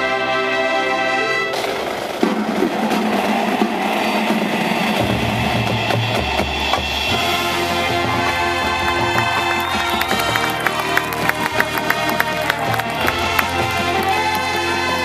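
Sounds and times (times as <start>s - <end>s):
brass chord: 0.0s - 1.7s, 6.6s - 15.0s
drum roll: 1.5s - 15.0s.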